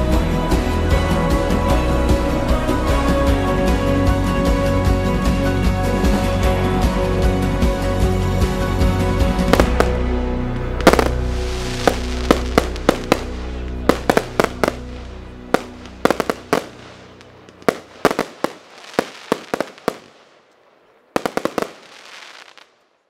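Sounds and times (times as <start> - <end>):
background music: 0.0 - 20.1
fireworks bangs and crackles: 9.4 - 10.0, 10.6 - 22.8.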